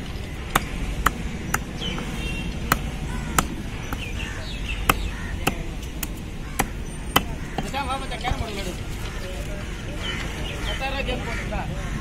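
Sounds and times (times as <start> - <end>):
knife chopping on wooden block: 2.7 - 4.2, 4.9 - 7.8.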